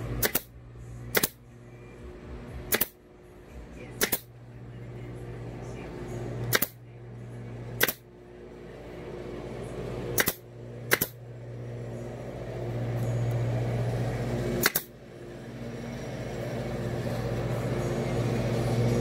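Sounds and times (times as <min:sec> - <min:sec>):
steady low hum: 0:00.0 - 0:19.0
staple gun snaps: 0:00.2 - 0:00.5, 0:01.1 - 0:01.4, 0:02.7 - 0:03.0, 0:04.0 - 0:04.3, 0:06.5 - 0:06.8, 0:07.8 - 0:08.0, 0:10.2 - 0:11.2, 0:14.6 - 0:14.9.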